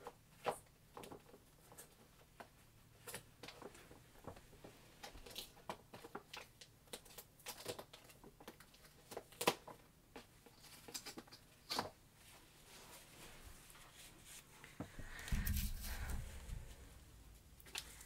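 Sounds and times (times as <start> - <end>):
handling rustles and taps: 0.0 - 12.5.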